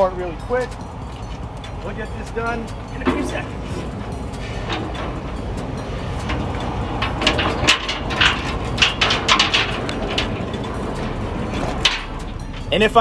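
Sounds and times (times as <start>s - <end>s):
chain clanking on metal frame: 0.0s - 13.0s
low steady rumble: 0.0s - 13.0s.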